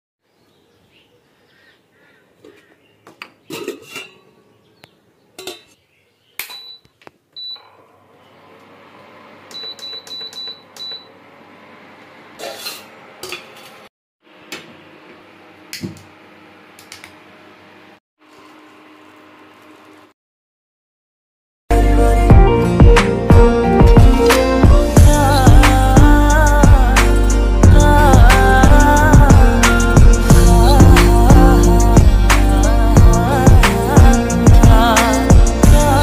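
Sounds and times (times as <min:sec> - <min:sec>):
pots and utensils clinking: 0:03.5 - 0:04.3, 0:05.4 - 0:05.8
cooktop control panel beeping: 0:06.4 - 0:07.8, 0:09.5 - 0:11.2.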